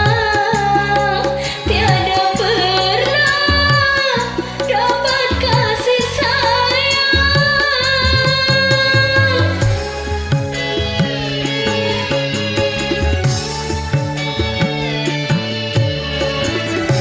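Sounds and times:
woman singing: 0.0 - 13.6
karaoke backing track: 0.0 - 17.0.

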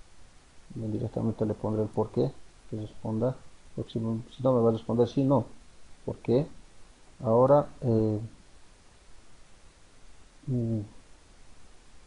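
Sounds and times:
man humming briefly: 10.5 - 10.9.

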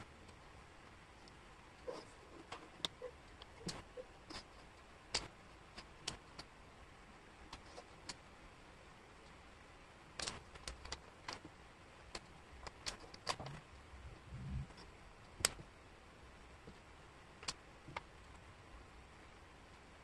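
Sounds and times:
wooden puzzle pieces clicking: 2.5 - 6.5, 10.2 - 11.5, 12.1 - 13.6.

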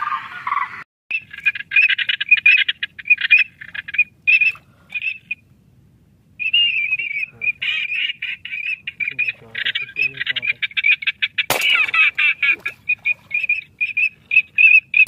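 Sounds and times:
ducks chattering: 0.0 - 5.4, 6.4 - 15.0.

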